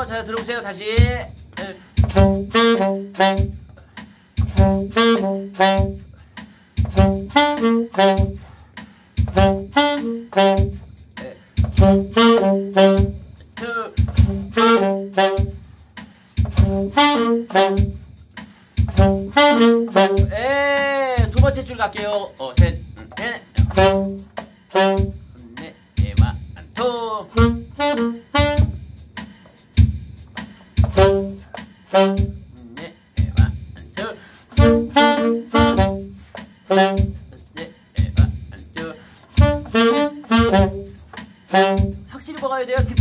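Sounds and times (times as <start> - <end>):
alto saxophones playing scales: 1.7 - 3.8, 4.5 - 8.6, 9.3 - 15.7, 16.5 - 18.1, 18.9 - 21.4, 23.6 - 25.6, 27.3 - 28.8, 30.9 - 32.8, 34.5 - 37.4, 38.9 - 42.2.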